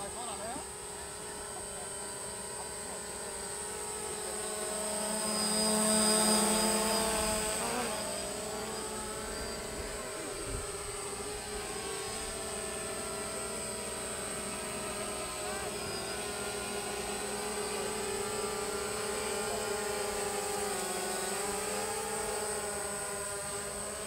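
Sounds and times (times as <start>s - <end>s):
drone propellers buzzing: 0.0s - 24.0s.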